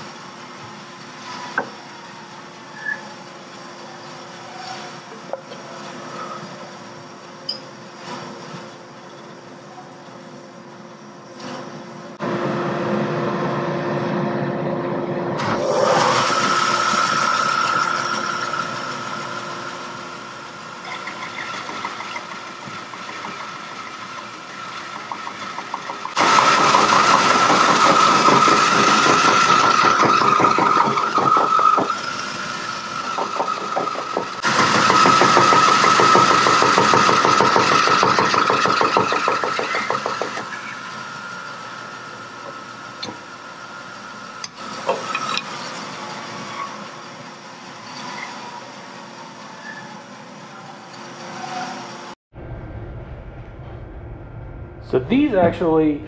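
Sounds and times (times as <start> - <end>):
bandsaw cutting wood: 15.4 - 19.5, 25.0 - 40.6
bandsaw starting up: 15.4 - 42.3.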